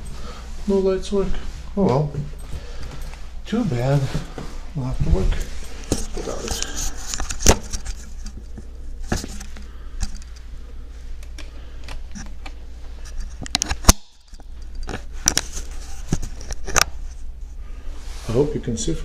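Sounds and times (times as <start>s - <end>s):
keys and tools jingling: 2.2s - 4.6s, 5.2s - 8.5s.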